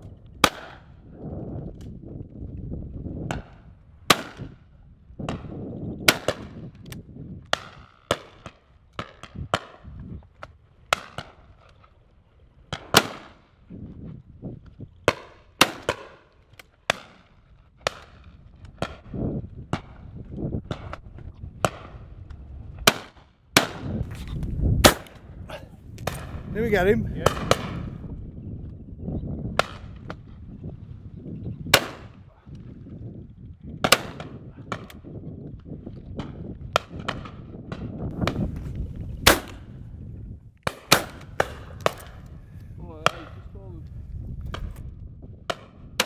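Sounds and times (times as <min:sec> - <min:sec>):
shotguns firing: 0:12.7 - 0:13.4, 0:24.8 - 0:25.2, 0:26.0 - 0:27.9, 0:33.8 - 0:34.9, 0:39.2 - 0:39.7, 0:40.6 - 0:42.3.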